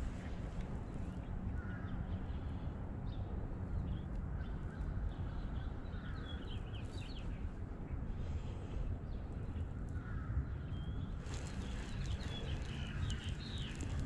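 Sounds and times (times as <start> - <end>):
low outdoor rumble: 0.0 - 14.0
birds calling: 9.1 - 14.0.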